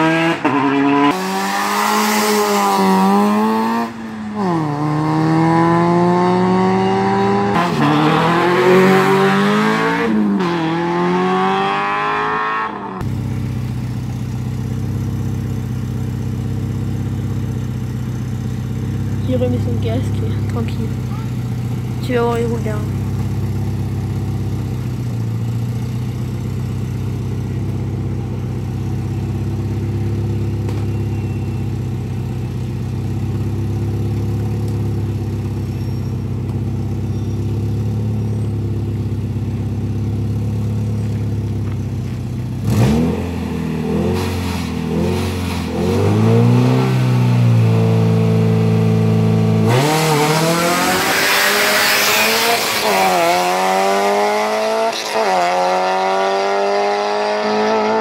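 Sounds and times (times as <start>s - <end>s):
car accelerating hard: 0.0s - 13.6s, 42.6s - 58.0s
engine revving: 0.0s - 15.2s, 18.2s - 32.2s, 42.5s - 58.0s
tyre and road noise: 0.0s - 58.0s
rally car engine idling: 13.0s - 42.7s.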